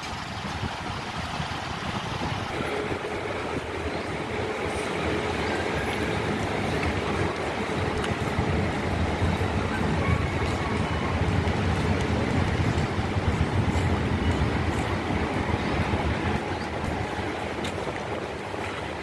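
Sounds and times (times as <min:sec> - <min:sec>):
city traffic noise: 0:00.0 - 0:19.0
wind buffeting microphone: 0:00.0 - 0:19.0.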